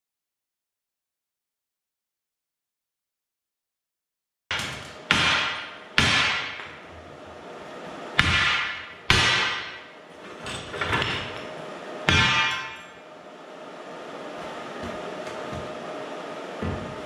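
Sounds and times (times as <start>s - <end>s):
hammer striking steel plate: 4.5s - 6.8s, 8.2s - 9.9s, 12.1s - 13.0s
steel ringing: 12.1s - 13.0s.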